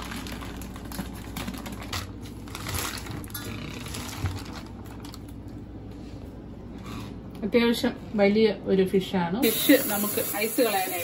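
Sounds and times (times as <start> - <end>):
plastic bag crinkling: 0.0 - 5.6.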